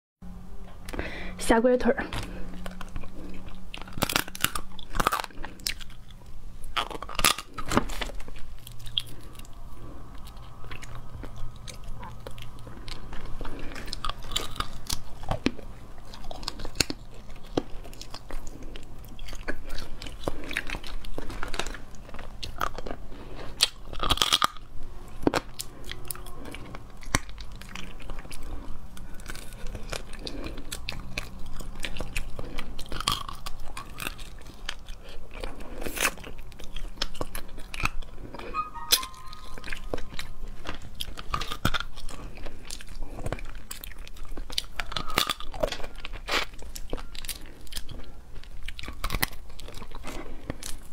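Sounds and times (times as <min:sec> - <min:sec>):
chewing: 0:02.0 - 0:50.9
crab shells cracking between teeth: 0:02.2 - 0:26.2, 0:41.0 - 0:50.9.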